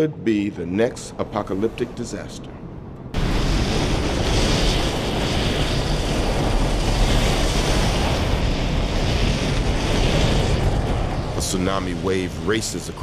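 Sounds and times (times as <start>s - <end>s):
wind: 0.0s - 13.0s
deep rumble: 1.2s - 13.0s
ocean wave rushing: 3.2s - 13.0s.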